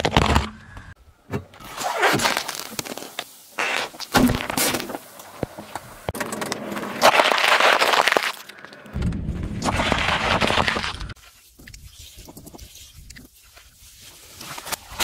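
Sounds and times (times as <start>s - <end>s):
peppers crunching under tyre: 1.6s - 13.4s
car tyre crushing can: 6.2s - 8.9s.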